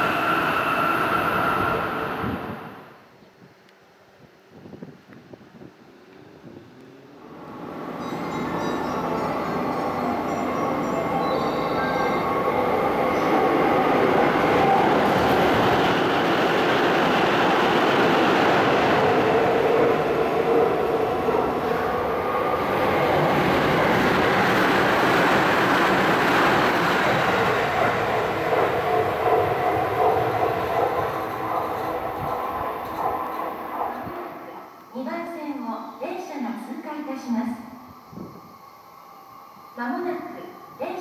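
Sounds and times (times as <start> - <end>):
electric train running: 7.5 - 34.2.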